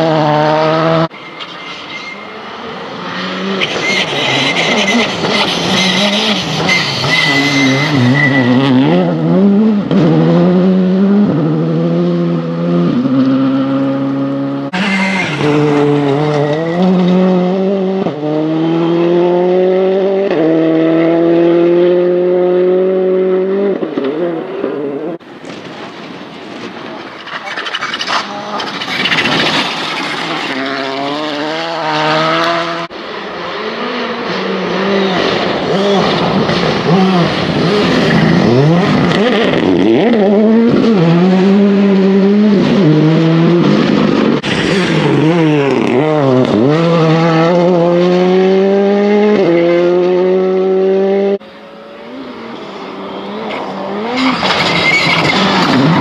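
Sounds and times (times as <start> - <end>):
rally car engines revving: 0.0 - 25.4, 26.8 - 56.0.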